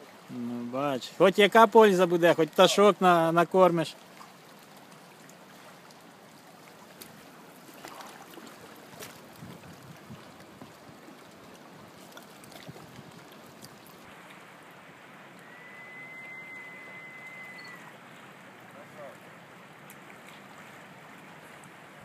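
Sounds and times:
river water lapping and flowing: 0.0s - 22.0s
steady high whistle: 15.4s - 17.9s.

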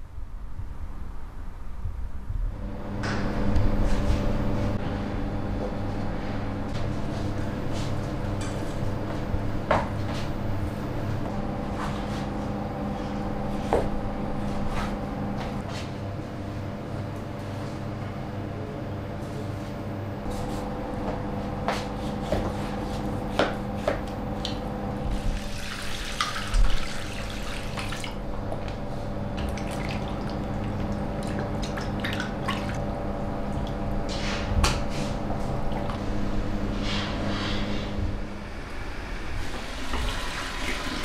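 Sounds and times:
kitchen hum: 2.5s - 41.0s
water splashing into bowl: 25.3s - 28.2s, 29.5s - 32.8s.

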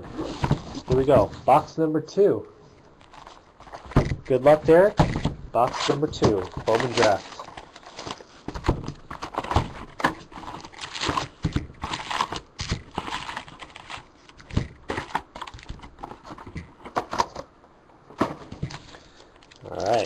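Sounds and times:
foil packs crinkling: 5.6s - 16.3s, 18.7s - 20.0s.

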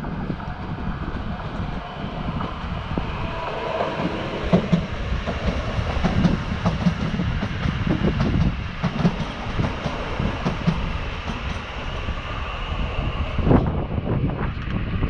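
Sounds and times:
electric train rumbling past: 0.0s - 15.0s
train wheels clacking over rail joints: 3.8s - 11.9s.

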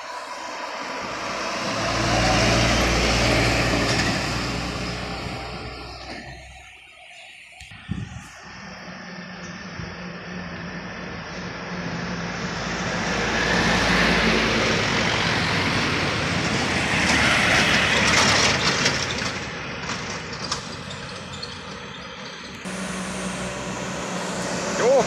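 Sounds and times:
truck diesel engines labouring: 0.0s - 25.0s.

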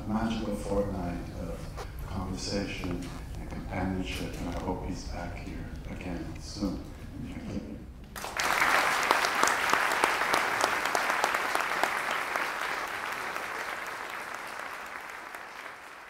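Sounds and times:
large audience applauding: 8.2s - 16.0s.

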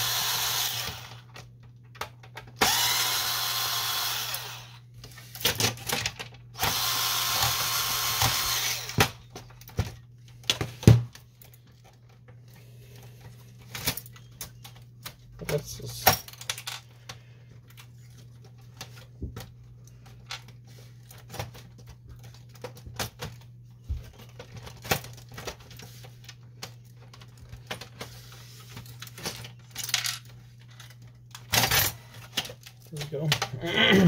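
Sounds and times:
plastic and metal parts rattling: 5.0s - 6.6s, 8.4s - 33.7s.

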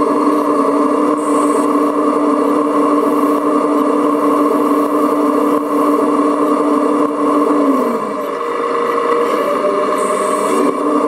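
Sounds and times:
hydraulic pump whine: 0.0s - 11.0s.

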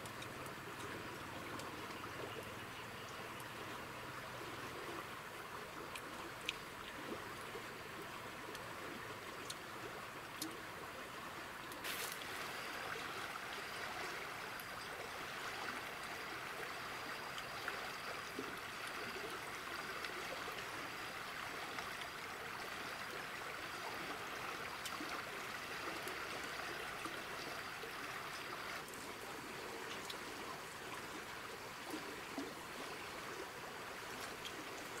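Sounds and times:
stream flowing: 0.0s - 35.0s.

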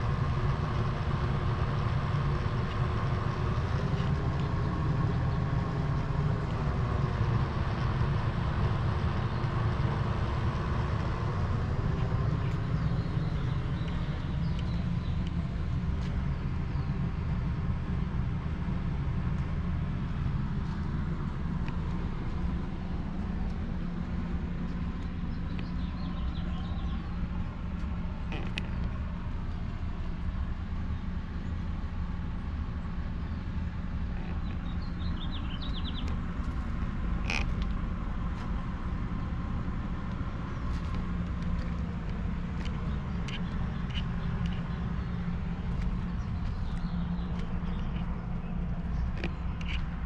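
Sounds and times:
distant traffic rumble: 0.0s - 50.0s
bird chirps: 34.2s - 36.2s.

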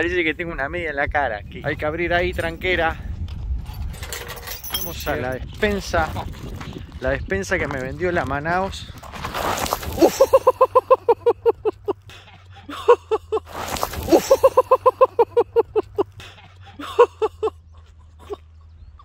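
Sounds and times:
person laughing hard: 9.9s - 18.8s.

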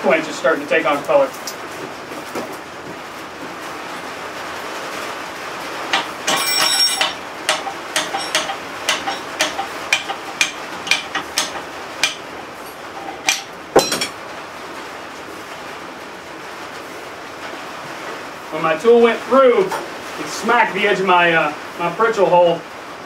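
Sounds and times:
hammer striking metal on anvil: 5.9s - 12.3s, 13.0s - 14.2s
punch smacking anvil edge: 6.0s - 12.2s.

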